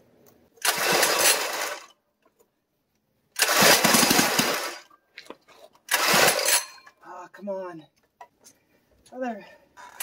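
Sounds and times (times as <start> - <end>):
engine bursts on pull-start: 0.6 - 1.9, 3.4 - 4.9, 5.9 - 6.6.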